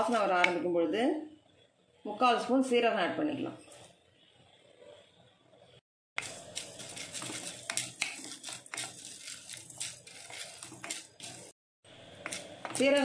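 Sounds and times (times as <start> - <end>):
seeds rattling in a pan: 6.2 - 11.6
spatula scraping an iron pan: 6.2 - 11.6.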